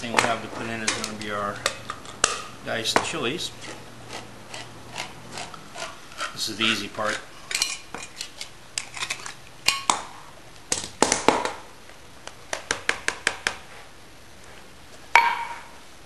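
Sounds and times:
metal taps: 15.2 - 15.7
metal clank: 15.2 - 15.8.

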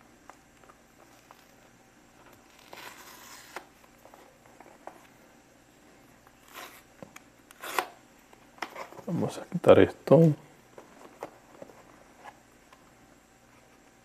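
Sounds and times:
packaging tearing: 2.3 - 3.7.

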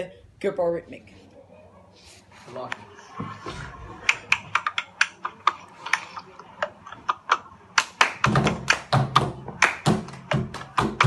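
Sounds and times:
hand claps and taps: 6.9 - 11.0.

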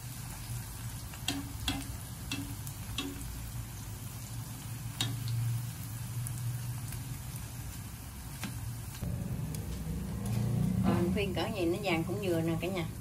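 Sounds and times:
shallots sizzling in oil: 0.0 - 13.0
chopsticks clicking against pan: 1.3 - 3.3, 5.0 - 5.3
steady low hum: 9.0 - 12.0.

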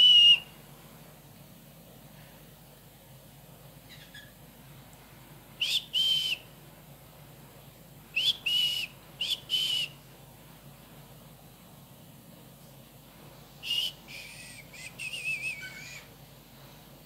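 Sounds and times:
whistled two-note call: 0.0 - 0.5, 8.2 - 10.0, 13.6 - 15.8.

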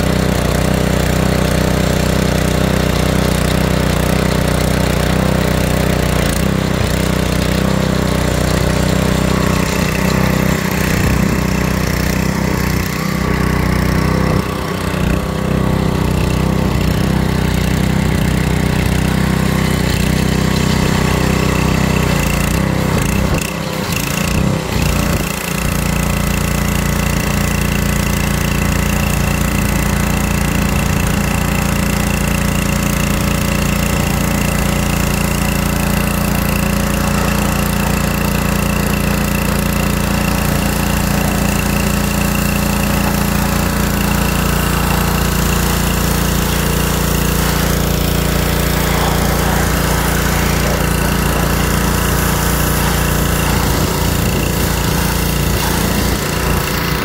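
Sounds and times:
small gas engine running: 0.0 - 57.0
water jet spraying hiss: 28.4 - 57.0.

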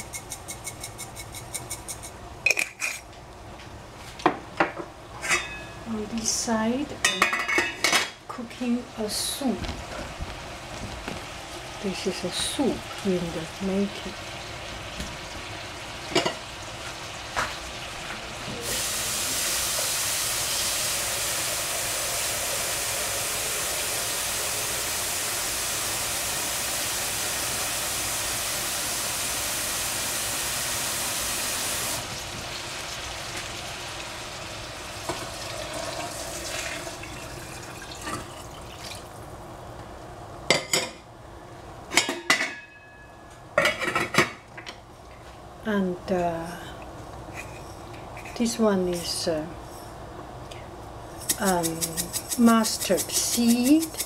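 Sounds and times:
pots and utensils clanking: 0.0 - 3.1, 4.3 - 5.9, 7.0 - 8.2, 16.1 - 16.5, 37.9 - 38.5, 41.9 - 44.8, 47.3 - 49.1, 51.2 - 54.0
water running from tap: 18.6 - 33.2, 35.0 - 39.1.

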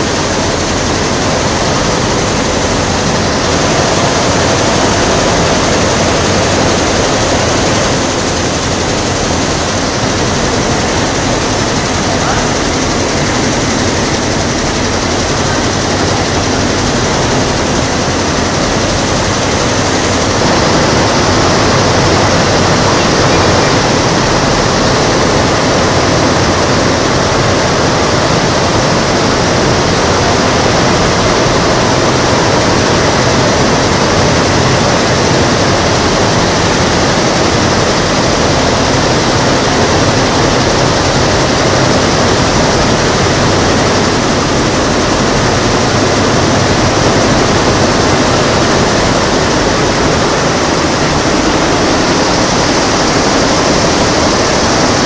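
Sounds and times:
embroidery machines clattering: 0.0 - 55.0.

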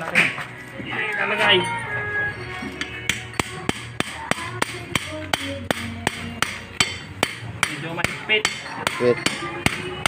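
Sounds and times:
hammering on metal: 3.0 - 10.0.

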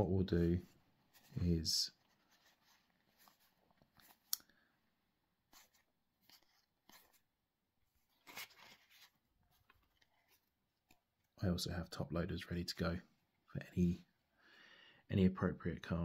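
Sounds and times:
cards and wrappers rustling: 5.5 - 7.3, 8.0 - 11.0.

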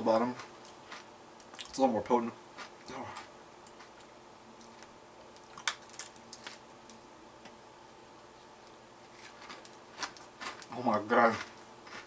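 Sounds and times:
chip crumbs crunching: 2.6 - 7.0, 8.6 - 12.0.

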